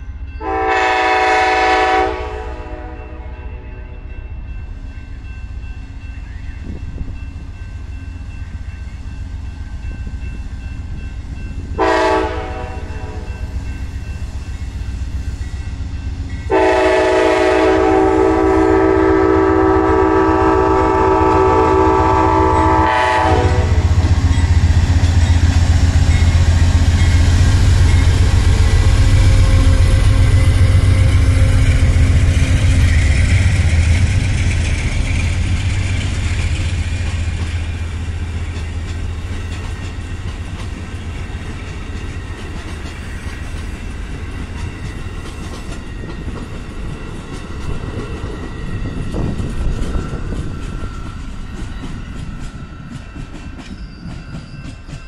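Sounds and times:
locomotive air horn blast: 0:00.4 - 0:03.6, 0:11.8 - 0:13.3, 0:16.5 - 0:24.0
diesel locomotive rumble: 0:04.4 - 0:53.5
train wheels clattering over rails: 0:22.2 - 0:55.0.

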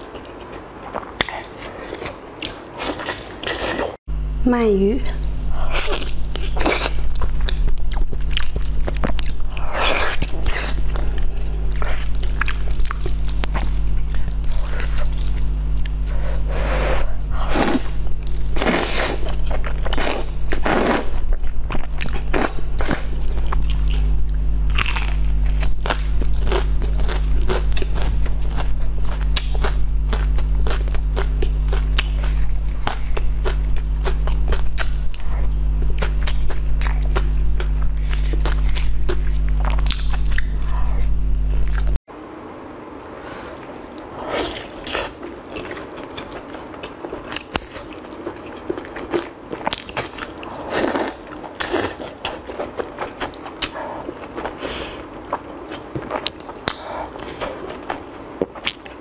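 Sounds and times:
biting and chewing: 0:00.0 - 0:04.0, 0:17.7 - 0:42.0
steady low hum: 0:00.0 - 0:59.0.

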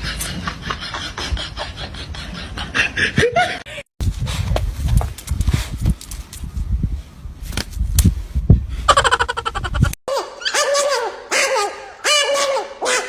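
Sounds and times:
wind rumble on microphone: 0:03.2 - 0:10.0.

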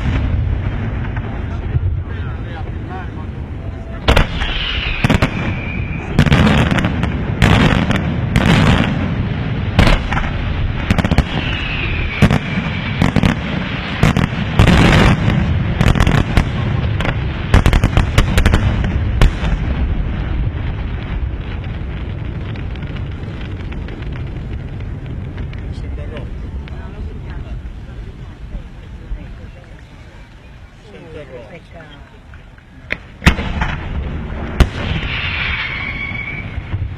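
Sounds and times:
low rumble: 0:00.0 - 0:30.8
firework crackling: 0:00.0 - 0:36.9
falling firework whistles: 0:03.8 - 0:06.9, 0:10.8 - 0:14.3, 0:34.6 - 0:36.9
firework shells bursting: 0:04.0 - 0:09.1, 0:32.2 - 0:36.9.

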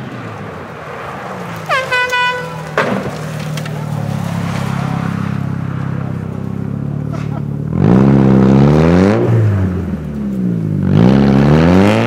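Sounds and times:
rally car engine approaching: 0:00.0 - 0:12.0
sharp crack: 0:00.9 - 0:05.2
horn blasts: 0:01.7 - 0:02.8.

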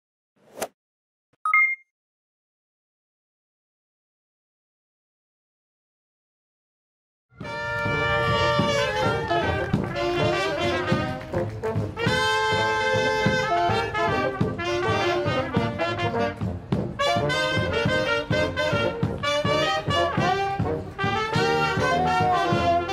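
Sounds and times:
brass band playing: 0:07.4 - 0:22.9
drum beating a steady rhythm: 0:07.4 - 0:22.9.

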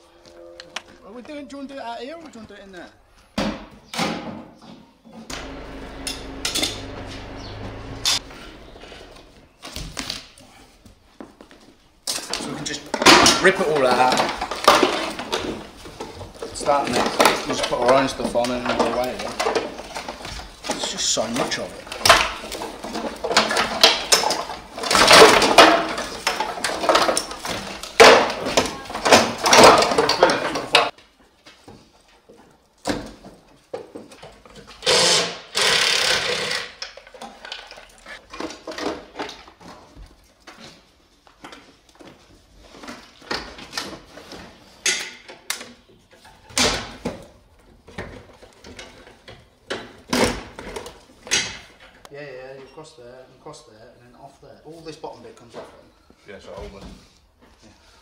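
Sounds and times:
metal parts clattering and clanking: 0:12.0 - 0:30.9.

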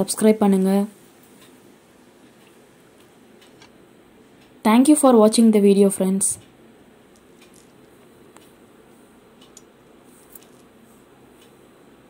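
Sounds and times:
room hiss: 0:00.0 - 0:12.0.

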